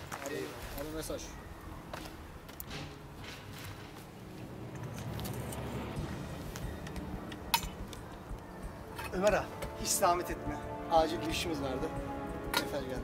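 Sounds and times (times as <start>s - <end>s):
clinks of handled objects: 6.6s - 9.8s.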